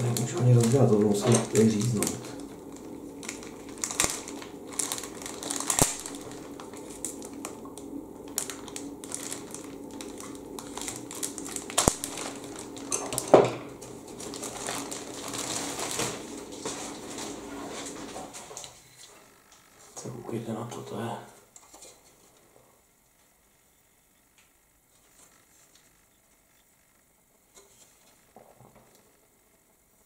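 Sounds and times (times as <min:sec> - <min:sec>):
plastic bag crinkling: 0:00.0 - 0:20.0.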